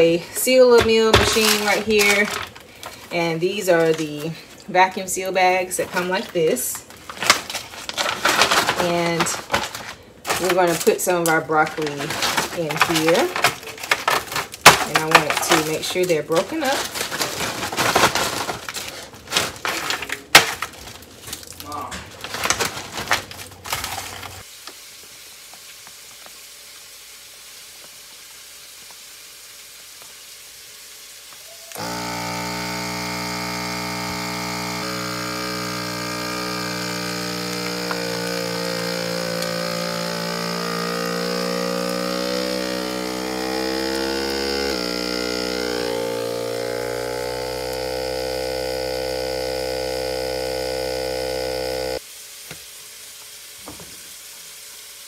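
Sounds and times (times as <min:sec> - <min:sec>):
vacuum sealer pump running: 0:31.7 - 0:52.0.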